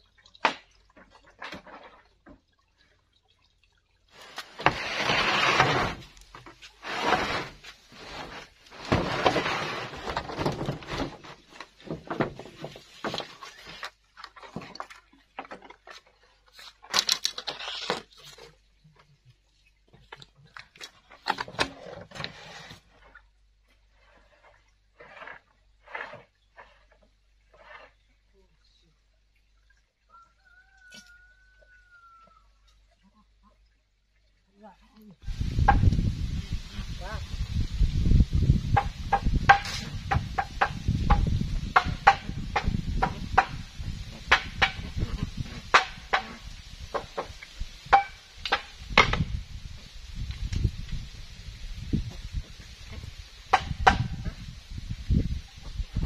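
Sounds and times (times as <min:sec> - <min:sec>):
bamboo scraping and rustling: 0:04.1 - 0:28.1, 0:35.3 - 0:56.0
bamboo knocking: 0:38.7 - 0:49.3, 0:53.5 - 0:54.2.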